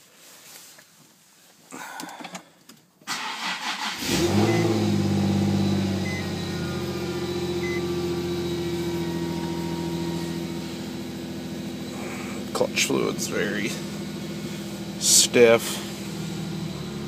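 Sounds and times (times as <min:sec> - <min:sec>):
car engine idling: 0:03.3 - 0:17.0
short electronic beeps: 0:04.4 - 0:04.8, 0:06.0 - 0:10.3.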